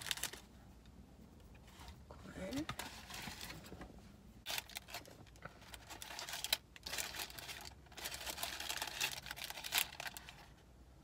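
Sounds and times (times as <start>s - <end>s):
paper wrapper crinkling: 0.0s - 0.5s, 4.4s - 10.5s.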